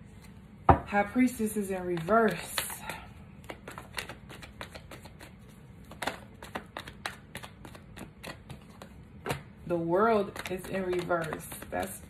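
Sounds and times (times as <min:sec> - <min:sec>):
cards being shuffled: 0:03.4 - 0:09.4, 0:10.1 - 0:12.0.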